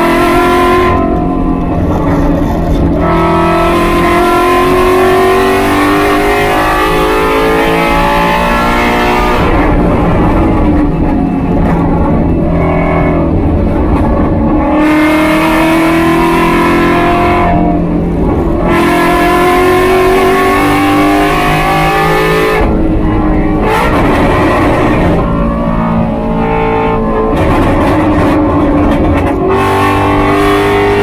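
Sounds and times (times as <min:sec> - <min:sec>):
race car engine at high revs: 0:00.0 - 0:31.0
wind and road noise: 0:00.0 - 0:31.0.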